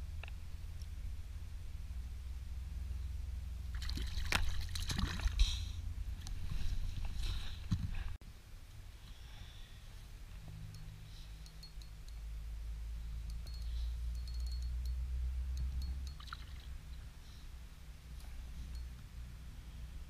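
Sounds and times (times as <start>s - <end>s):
low rumble: 0.0s - 8.2s
water splashing and lapping: 3.7s - 5.5s, 16.1s - 16.8s.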